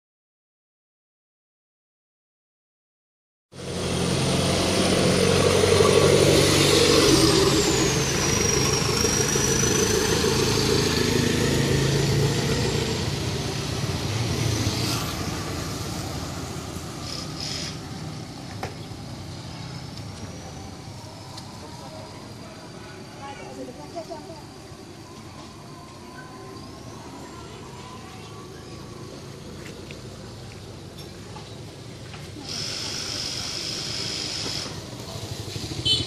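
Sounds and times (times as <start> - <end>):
vehicle engine running: 3.6 - 36.0.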